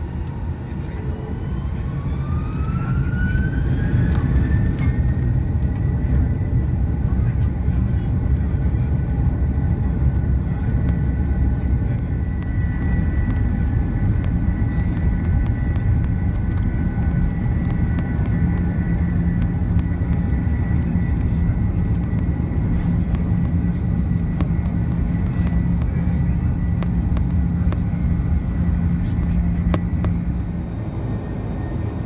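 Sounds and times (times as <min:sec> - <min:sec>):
jet engines whining at takeoff: 0:00.0 - 0:32.0
low steady hum: 0:00.0 - 0:32.0
wheels rumbling on runway: 0:00.0 - 0:32.0.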